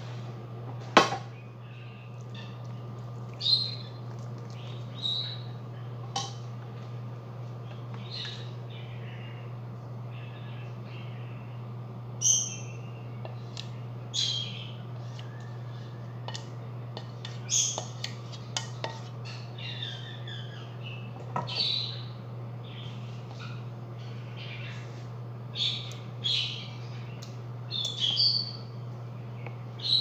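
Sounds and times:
steady low hum: 0:00.0 - 0:30.0
birds chirping and squawking: 0:03.4 - 0:05.6, 0:08.0 - 0:09.5, 0:14.1 - 0:14.8, 0:19.2 - 0:27.0, 0:27.7 - 0:28.8, 0:29.8 - 0:30.0.

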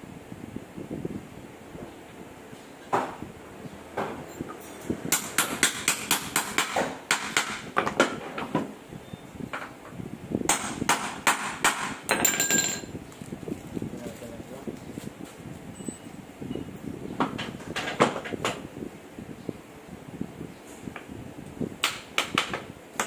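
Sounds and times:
hammer striking metal joint: 0:05.1 - 0:08.1, 0:10.5 - 0:12.6.

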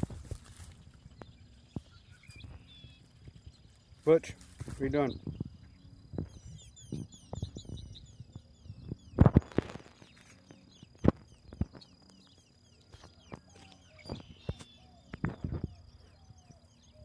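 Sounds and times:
dry reeds rustling and crackling: 0:00.0 - 0:06.3, 0:09.2 - 0:15.8
small birds chirping: 0:00.0 - 0:17.0.

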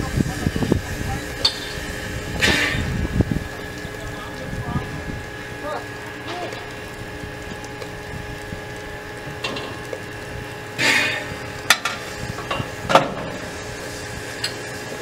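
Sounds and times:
steam locomotive hissing: 0:00.0 - 0:03.0, 0:10.8 - 0:12.5
loud burst of steam: 0:00.0 - 0:03.2, 0:10.8 - 0:14.3
sharp metallic clanks: 0:01.4 - 0:01.8.

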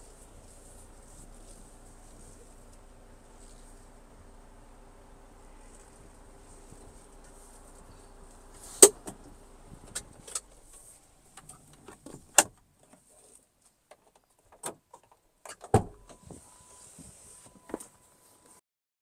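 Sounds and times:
faint low hum: 0:00.0 - 0:08.6
car door latch thump: 0:15.7 - 0:16.1.

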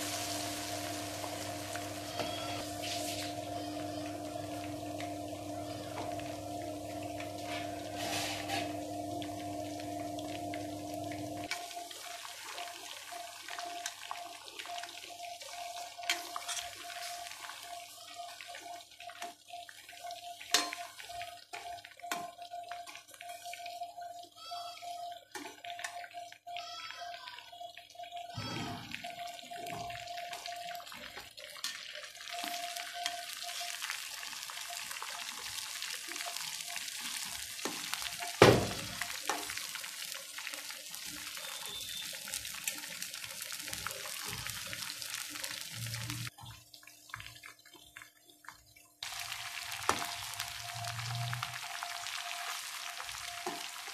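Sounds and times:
meat deep-frying in hot oil: 0:00.0 - 0:53.9
metal spoon scraping a pan: 0:07.5 - 0:08.7, 0:16.4 - 0:16.8.

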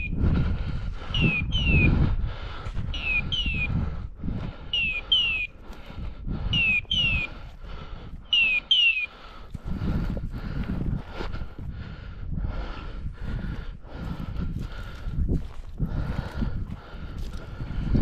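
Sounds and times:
low wind rumble on microphone: 0:00.0 - 0:18.0
falling electronic chirps: 0:04.8 - 0:05.5.

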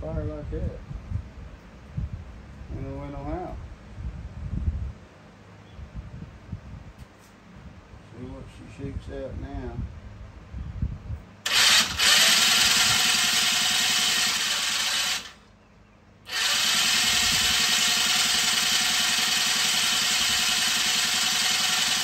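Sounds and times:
electric starter cranking engine: 0:11.4 - 0:15.5, 0:16.2 - 0:22.0.

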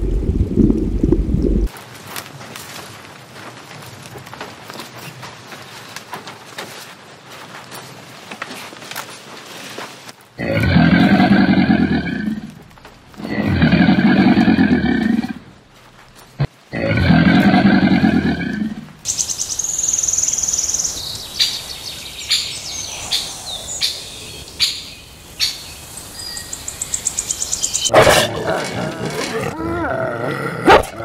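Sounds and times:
crocodile growling: 0:10.4 - 0:12.6, 0:13.2 - 0:15.4, 0:27.9 - 0:31.0
chirps: 0:19.1 - 0:27.9.

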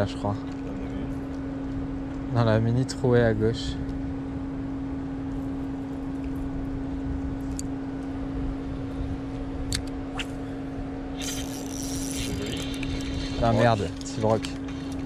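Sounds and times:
low hum and rumble: 0:00.0 - 0:15.0
fishing reel clicks: 0:11.2 - 0:15.0.

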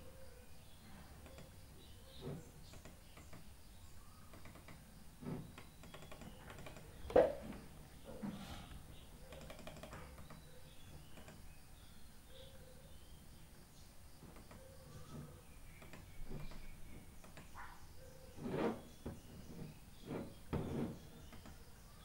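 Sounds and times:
keyboard and mouse clicks: 0:04.3 - 0:04.8, 0:05.6 - 0:07.2, 0:09.3 - 0:11.4, 0:14.3 - 0:14.7, 0:15.8 - 0:17.6.

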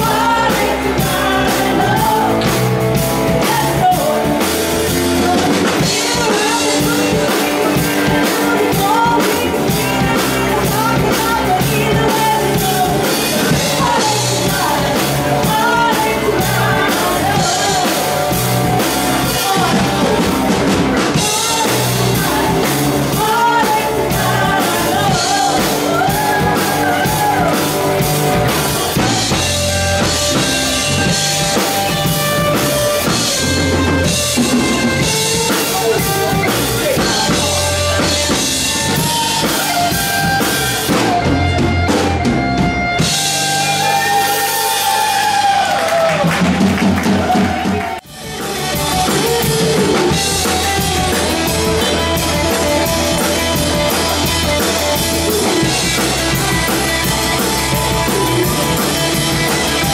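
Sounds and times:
woman singing: 0:00.0 - 0:20.5, 0:21.1 - 0:27.6, 0:35.4 - 0:40.0
live rock band playing: 0:00.0 - 0:59.9.

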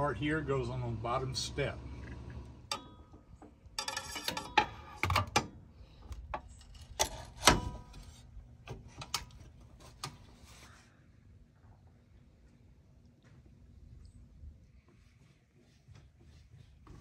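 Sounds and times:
metal clanks and clicks: 0:02.7 - 0:08.1.

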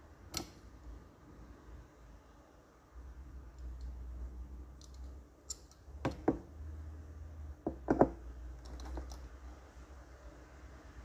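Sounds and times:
low steady hum: 0:00.0 - 0:11.0
metal tip clicking on rivets: 0:00.3 - 0:00.6, 0:04.8 - 0:06.2.

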